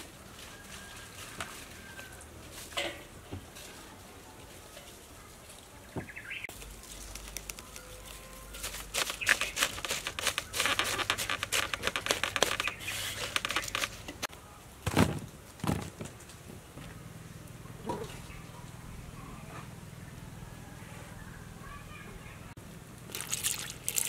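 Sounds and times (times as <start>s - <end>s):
cabbage leaves crackling in bowl: 6.5s - 14.3s.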